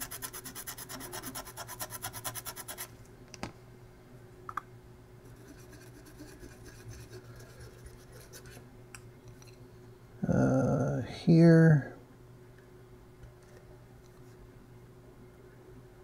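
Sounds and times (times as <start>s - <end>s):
pen scrubbing circuit board: 0.0s - 2.9s, 5.4s - 8.6s
faint rubbing: 5.4s - 8.6s.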